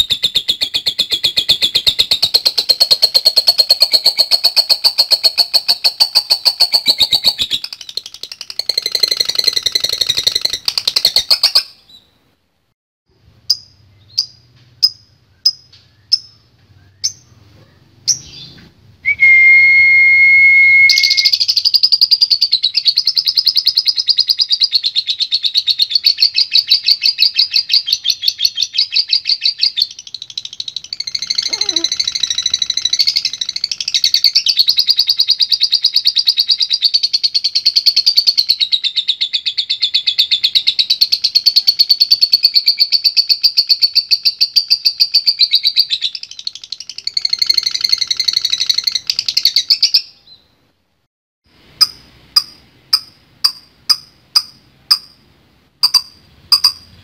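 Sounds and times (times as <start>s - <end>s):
lovebird chattering trill: 0.0s - 12.0s, 20.9s - 50.4s, 51.8s - 57.0s
bird chirps: 0.0s - 12.2s, 13.4s - 18.7s, 20.9s - 50.6s, 51.8s - 57.0s
whistled note: 19.1s - 21.3s.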